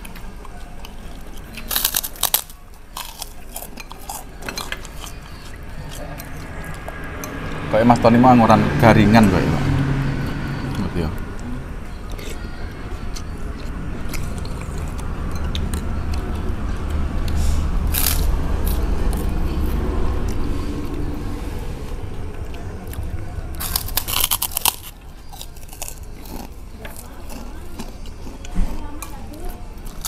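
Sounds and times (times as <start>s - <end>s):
crunching and chewing cracker: 0.0s - 7.0s, 11.9s - 21.1s, 22.2s - 30.0s.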